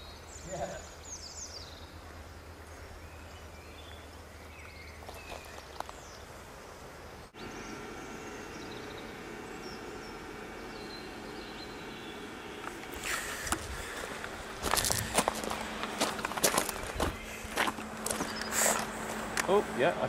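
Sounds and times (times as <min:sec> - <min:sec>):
steady hum: 0:00.0 - 0:20.0
faint bird chirps: 0:07.0 - 0:14.0.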